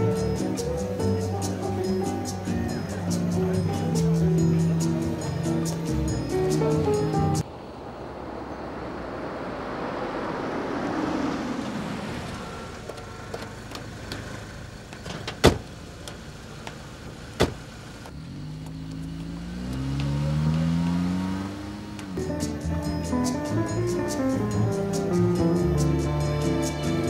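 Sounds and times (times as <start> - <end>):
car driving up: 0.0 - 27.0
car engine pulling away: 0.0 - 27.0
car doors shutting: 11.7 - 18.8.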